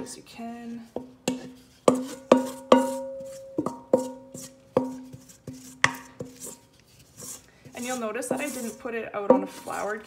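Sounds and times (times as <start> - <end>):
spoon scraping dough: 0.5 - 10.0
wooden spoon knocking metal bowl: 0.9 - 6.6, 7.7 - 10.0.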